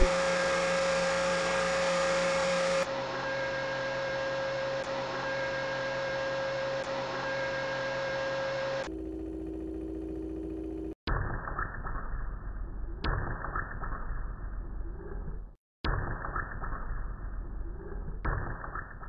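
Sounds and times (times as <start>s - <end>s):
machine hum and hiss: 0.0s - 11.0s.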